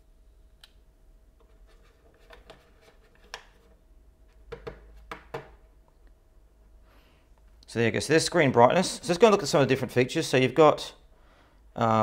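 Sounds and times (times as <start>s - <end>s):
faint steady hum: 0.0s - 12.0s
fingers tapping plastic case: 4.5s - 5.6s.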